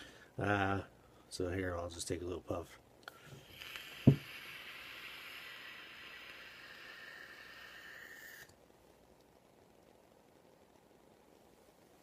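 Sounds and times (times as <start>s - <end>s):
vape hissing: 3.1s - 8.6s.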